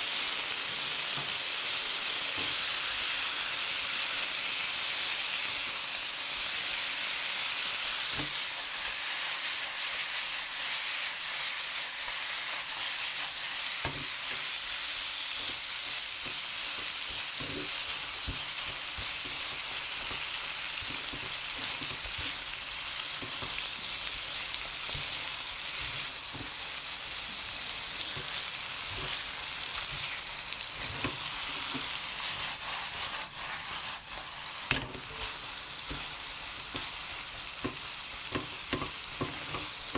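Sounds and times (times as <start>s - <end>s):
dumplings sizzling in oil: 0.0s - 39.9s
sauce bubbling in frying pan: 0.0s - 39.9s
spatula knocking and scraping pan: 13.8s - 14.6s, 15.2s - 22.5s, 23.2s - 23.9s, 24.8s - 26.7s, 28.0s - 30.2s, 30.8s - 39.9s.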